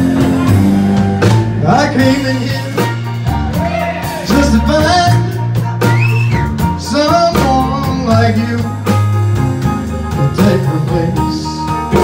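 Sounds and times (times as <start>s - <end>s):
live band playing: 0.0s - 12.0s
man singing: 1.4s - 5.7s, 6.6s - 9.1s, 10.1s - 12.0s.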